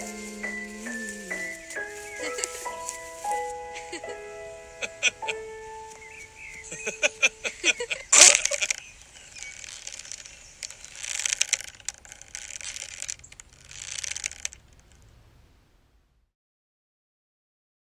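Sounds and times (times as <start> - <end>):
rasping noise: 0.0 - 3.5, 6.6 - 15.0
sharp clicks: 4.8 - 15.1
rope snapping tight: 8.1 - 14.7.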